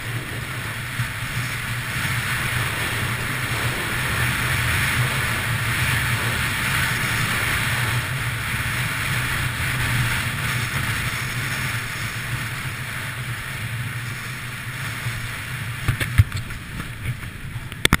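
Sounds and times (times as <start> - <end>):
skis sliding on snow: 0.0 - 17.8
wind rushing over microphone: 0.0 - 18.0.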